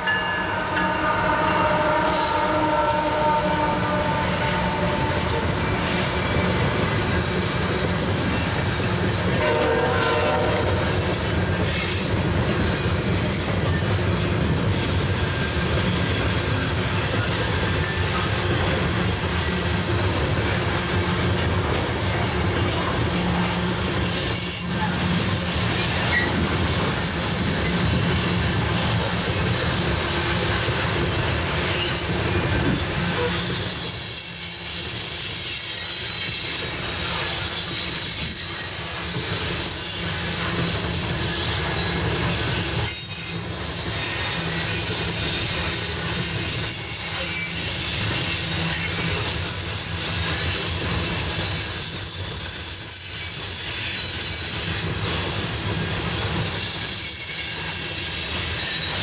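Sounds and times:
train wheels rumbling on rails: 0.0 - 59.0
wheel squeal: 14.7 - 18.3, 31.3 - 59.0.

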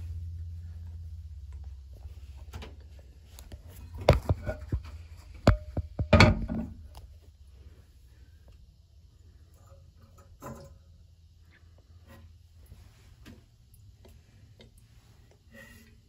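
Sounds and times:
porcelain lid clunking and scraping: 3.9 - 6.9.

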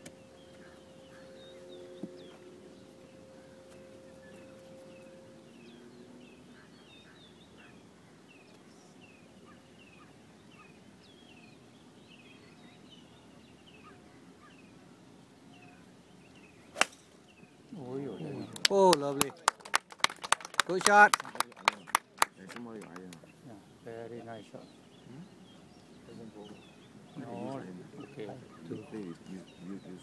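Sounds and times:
bird chirping: 0.0 - 18.6
golf iron striking ball: 16.7 - 17.3.

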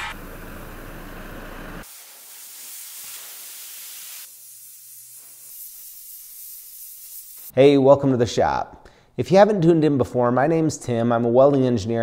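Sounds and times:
torch flame hissing: 1.7 - 7.5.

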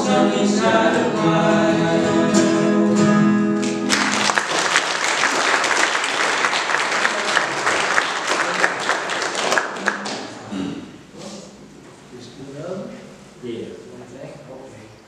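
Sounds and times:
person singing: 0.0 - 3.7
acoustic guitar chord: 0.0 - 4.3
audience applauding: 3.6 - 10.4.

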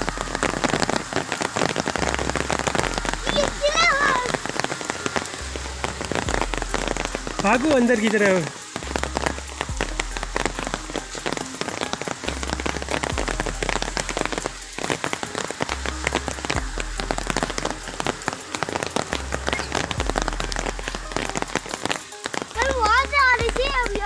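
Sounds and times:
rain falling: 0.0 - 24.0
low rumble: 5.4 - 7.9.

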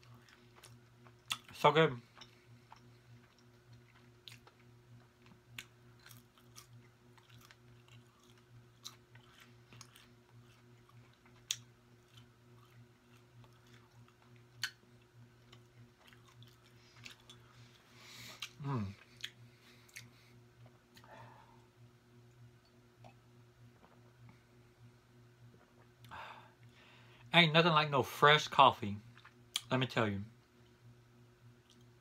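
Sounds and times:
chewing food: 0.0 - 21.1, 29.0 - 29.7, 31.6 - 32.0
low steady hum: 0.0 - 32.0.

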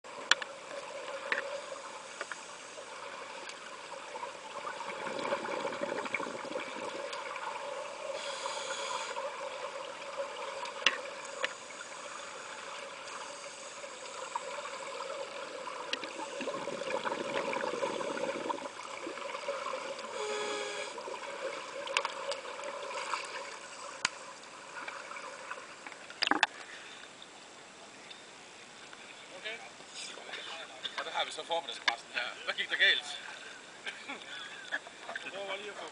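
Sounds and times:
steady hum: 0.1 - 21.8
underwater bubbles gurgling: 0.1 - 26.6.

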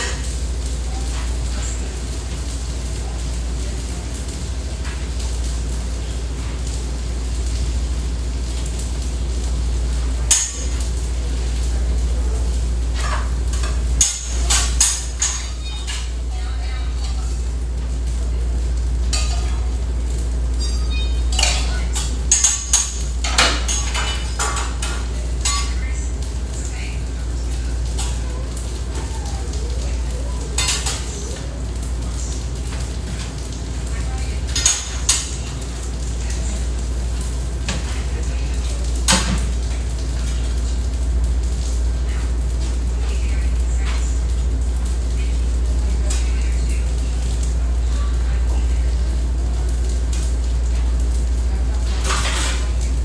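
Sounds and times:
low kitchen hum: 0.0 - 53.0
plates and utensils clinking: 12.9 - 16.2, 19.1 - 19.7, 20.6 - 25.8, 30.5 - 31.2, 34.4 - 35.6, 51.9 - 52.8.

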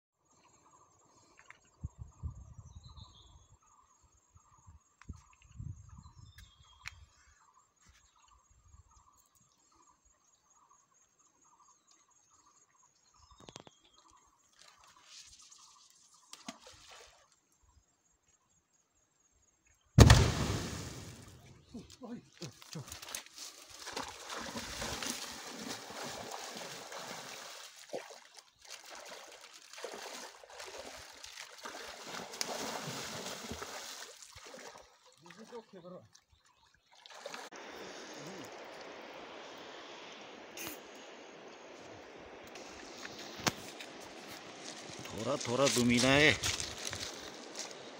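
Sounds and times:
insects chirping: 0.2 - 47.9
water splashing from wading: 22.8 - 44.3.

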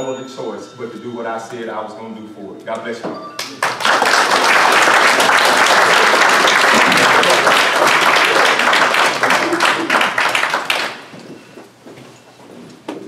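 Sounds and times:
audience applauding: 3.4 - 11.1.

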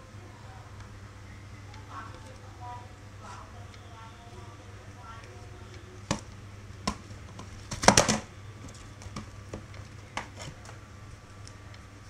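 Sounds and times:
cardboard crackling: 5.0 - 12.0.

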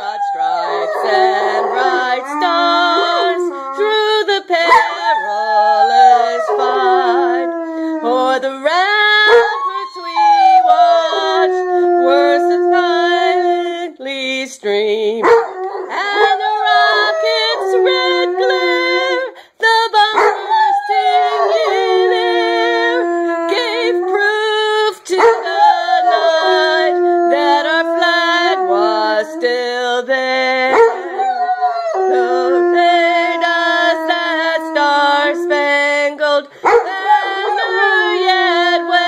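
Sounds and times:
dog howling: 0.0 - 13.7, 15.2 - 19.3, 20.1 - 29.7, 30.6 - 39.0.

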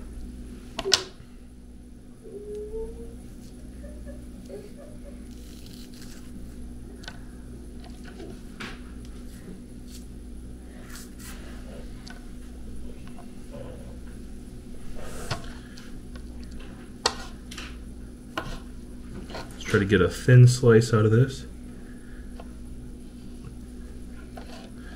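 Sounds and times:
steady low hum: 0.0 - 24.9
knife tapping and scraping board: 17.0 - 17.4, 18.4 - 19.5, 24.3 - 24.7.

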